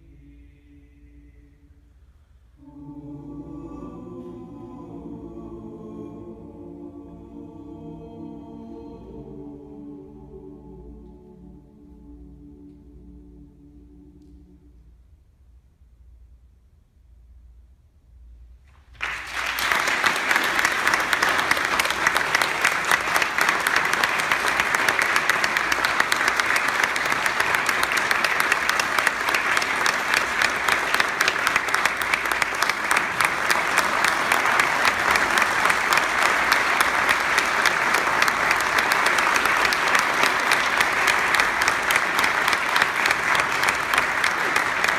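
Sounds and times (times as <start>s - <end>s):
audience applauding: 18.9s - 44.9s.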